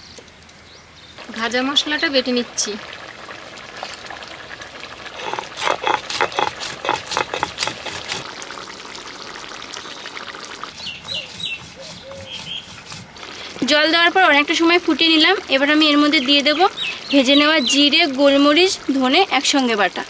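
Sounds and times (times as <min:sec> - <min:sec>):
stone roller grinding seeds: 0:05.2 - 0:08.3, 0:10.7 - 0:13.8.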